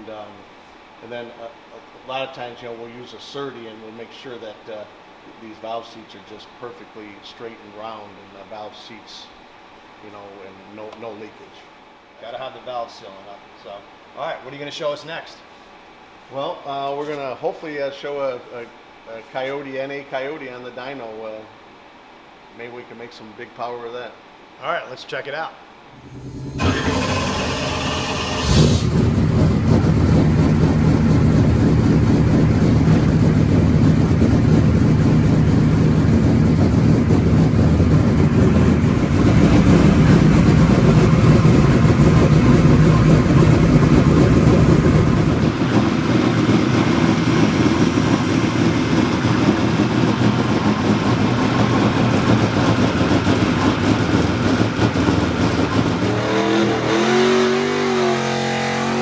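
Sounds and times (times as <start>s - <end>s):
race engine cranking and running: 26.0s - 56.8s.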